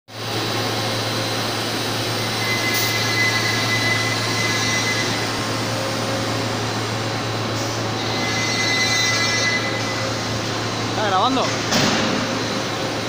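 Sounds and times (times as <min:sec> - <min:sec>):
hum and whir of motors and blowers: 0:00.1 - 0:13.0.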